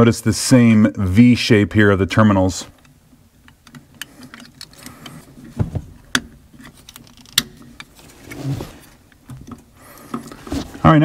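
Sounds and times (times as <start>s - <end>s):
spade connectors clicking: 2.8s - 8.0s.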